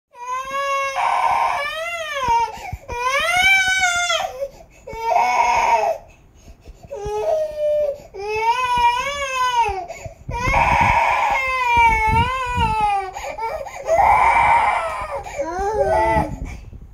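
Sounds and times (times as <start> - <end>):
toddler crying: 0.2 - 6.1, 6.9 - 16.5.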